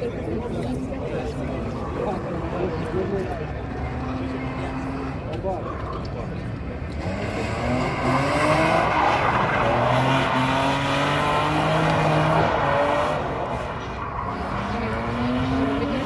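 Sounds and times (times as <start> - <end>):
car engine revving: 6.8 - 16.0
tyres squealing on asphalt: 7.0 - 16.0.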